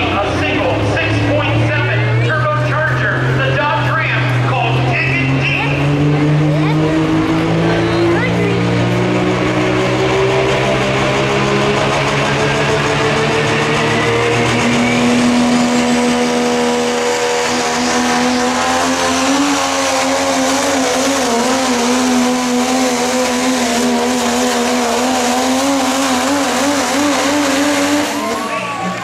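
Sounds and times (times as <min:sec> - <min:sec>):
truck engine at full throttle: 0:00.0 - 0:29.0.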